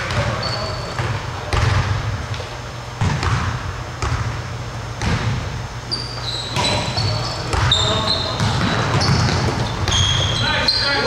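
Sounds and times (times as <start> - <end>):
sneaker squeaks: 0.0 - 1.6, 5.8 - 11.0
basketball bouncing on wooden floor: 3.0 - 4.4, 5.0 - 5.4, 6.5 - 10.4.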